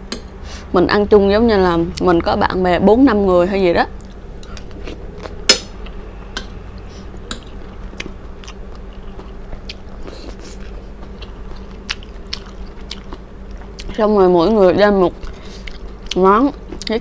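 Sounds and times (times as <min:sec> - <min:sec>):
low hum: 0:00.0 - 0:17.0
person chewing food: 0:04.0 - 0:14.0, 0:15.1 - 0:17.0.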